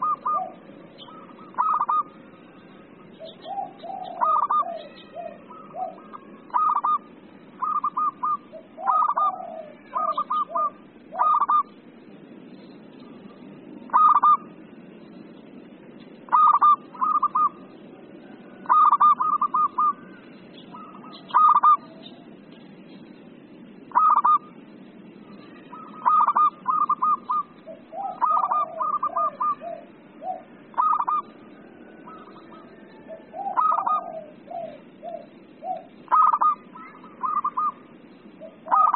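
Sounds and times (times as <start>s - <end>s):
dove cooing: 0.0s - 11.8s, 13.0s - 14.7s, 16.3s - 22.4s, 23.8s - 24.6s, 25.3s - 38.9s
steady low hiss: 0.0s - 38.9s.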